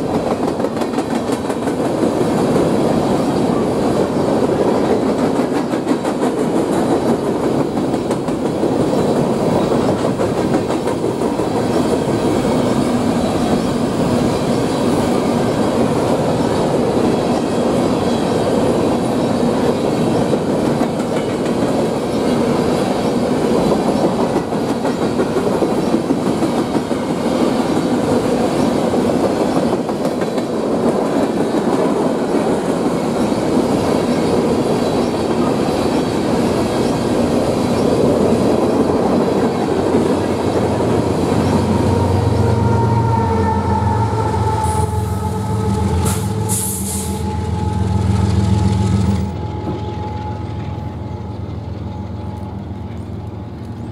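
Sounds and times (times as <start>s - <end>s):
wheels clacking over rail joints: 0.0s - 42.7s
diesel locomotive engine hum: 0.0s - 53.9s
freight train cars rumbling past: 0.0s - 53.9s.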